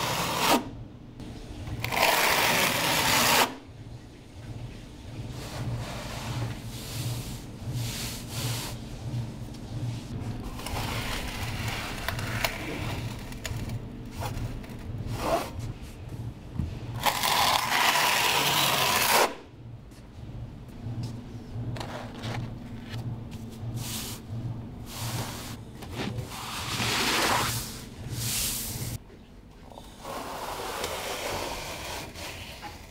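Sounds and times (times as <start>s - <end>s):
low pulsing hum: 3.6s - 17.1s, 19.4s - 26.6s.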